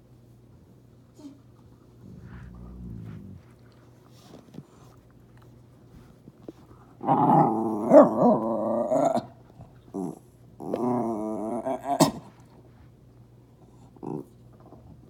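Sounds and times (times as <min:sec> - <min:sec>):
dog growling: 0:02.0 - 0:03.9, 0:07.0 - 0:09.3, 0:09.9 - 0:12.1, 0:14.0 - 0:14.3.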